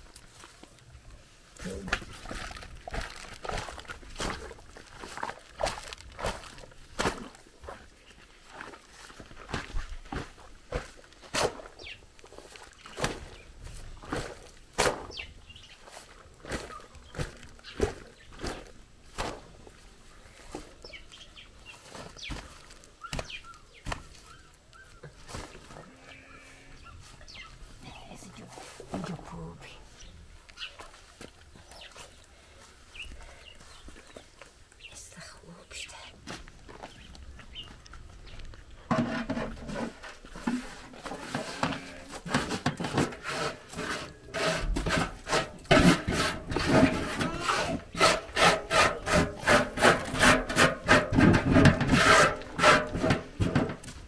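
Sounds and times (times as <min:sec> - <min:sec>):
dry skins scraping on metal: 0:38.9 - 0:53.9.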